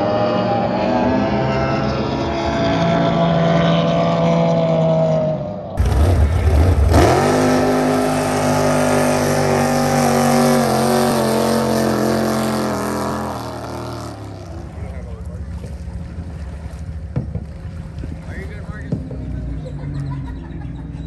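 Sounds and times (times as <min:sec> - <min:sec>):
racing boat engines whining: 0:00.0 - 0:21.0.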